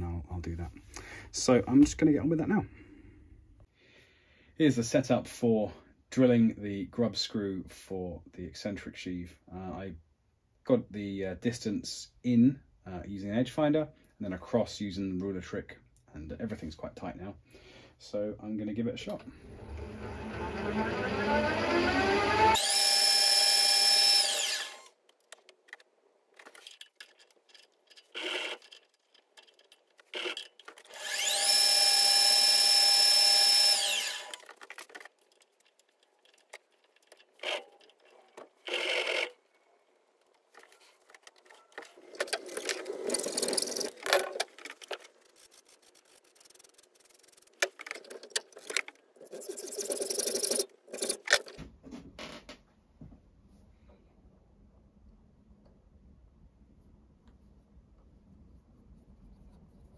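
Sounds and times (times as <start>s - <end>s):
drill press whining: 19.4s - 24.9s, 30.1s - 35.0s, 36.9s - 39.4s.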